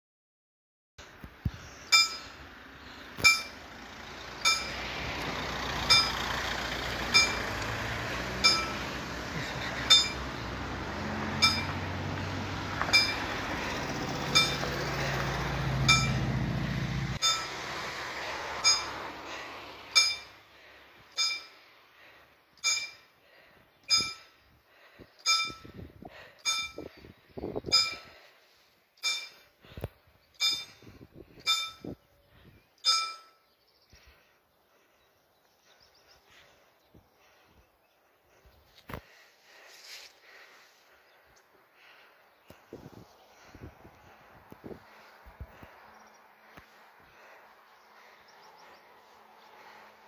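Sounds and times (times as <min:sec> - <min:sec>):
level-crossing warning bell: 0:01.9 - 0:02.3, 0:03.2 - 0:03.6, 0:04.4 - 0:04.8, 0:05.9 - 0:06.3, 0:07.1 - 0:07.7, 0:08.4 - 0:08.9, 0:09.9 - 0:10.4, 0:11.3 - 0:11.8, 0:12.9 - 0:13.3, 0:14.2 - 0:14.7, 0:15.8 - 0:16.3, 0:17.2 - 0:17.6, 0:18.6 - 0:19.0, 0:20.0 - 0:20.4, 0:21.2 - 0:21.6, 0:25.2 - 0:25.7
van engine driving past: 0:02.2 - 0:22.2, 0:42.9 - 0:50.0.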